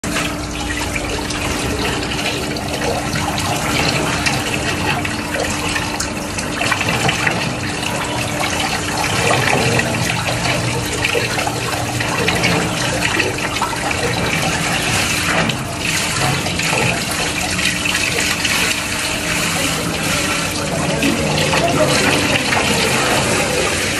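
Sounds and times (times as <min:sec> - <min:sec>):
shower sprayer water spraying: 0:00.0 - 0:23.9
water splashing into tub: 0:00.0 - 0:23.9.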